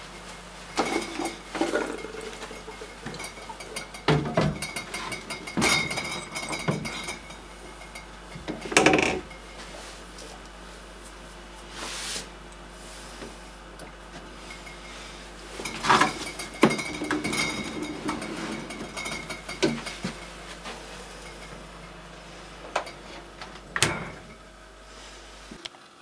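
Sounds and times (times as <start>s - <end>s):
fermenter clunking and knocking: 0.8s - 9.5s, 15.6s - 20.7s.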